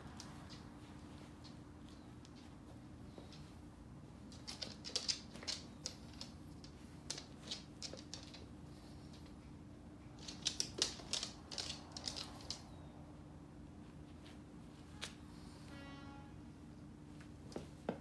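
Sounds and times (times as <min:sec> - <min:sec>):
faint low hum: 0:00.0 - 0:18.0
dog claws clicking on floor: 0:04.2 - 0:09.3, 0:10.0 - 0:12.8.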